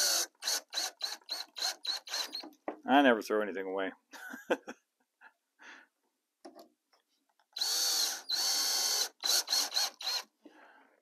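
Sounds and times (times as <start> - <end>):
cordless drill whining: 0.0 - 2.5, 7.5 - 10.3.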